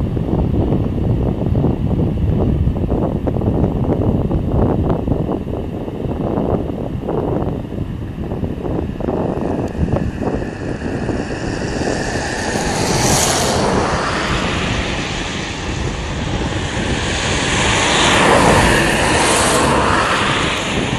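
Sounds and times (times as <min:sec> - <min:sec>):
wind rumbling on microphone: 0:00.0 - 0:20.9
road traffic passing: 0:07.3 - 0:20.9.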